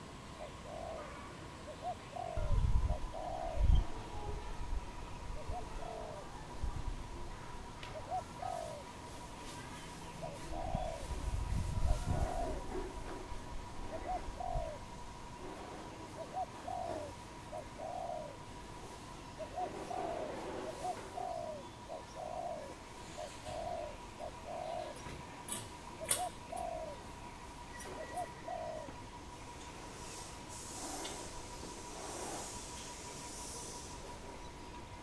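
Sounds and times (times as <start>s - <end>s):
dove cooing: 0.0s - 4.6s, 5.2s - 6.6s, 7.3s - 9.0s, 10.1s - 25.3s, 25.9s - 29.2s.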